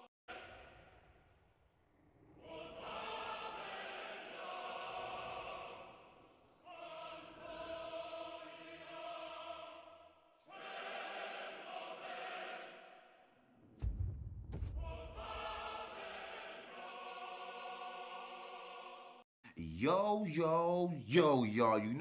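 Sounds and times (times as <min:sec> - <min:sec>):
choir holding long chords: 0:02.3 - 0:13.2, 0:14.8 - 0:19.2.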